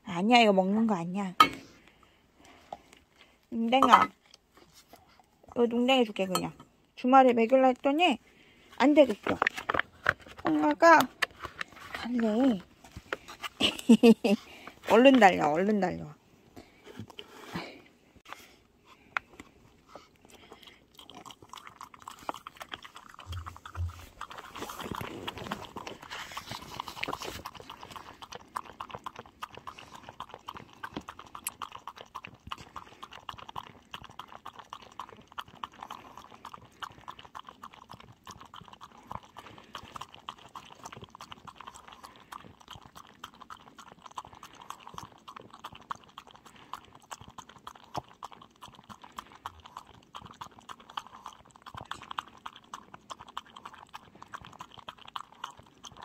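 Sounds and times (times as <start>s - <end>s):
dog chewing and licking: 18.2s - 56.0s.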